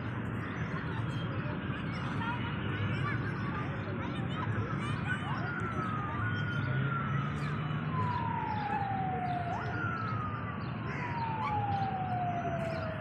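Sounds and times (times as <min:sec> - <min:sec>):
siren-like wailing tone: 0:07.8 - 0:13.0.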